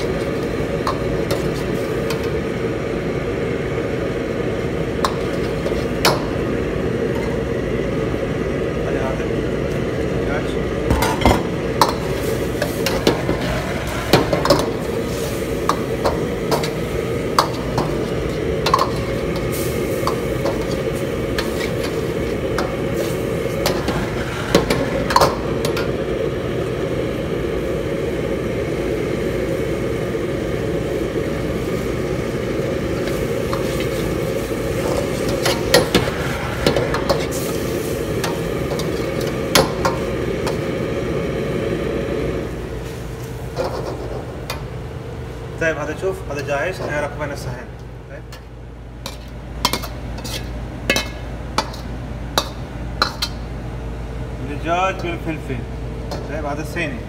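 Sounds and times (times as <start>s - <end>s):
ladle clinking against wok: 49.1s - 53.4s.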